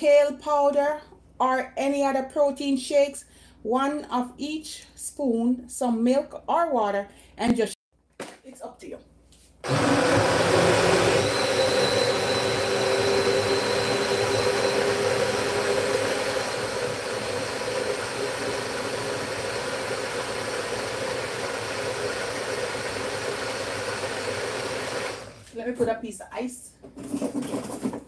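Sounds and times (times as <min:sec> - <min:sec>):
blender motor running: 0:09.6 - 0:25.5.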